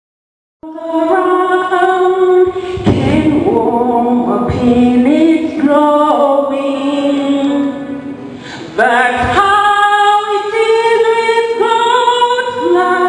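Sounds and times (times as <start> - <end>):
woman singing into microphone: 0.6 - 13.0.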